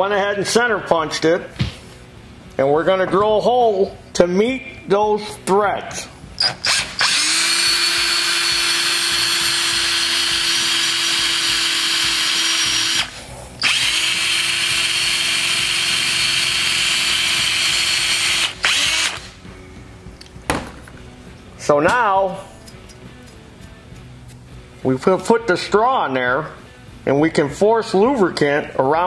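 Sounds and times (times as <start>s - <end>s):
electric drill boring into metal: 6.4s - 19.4s.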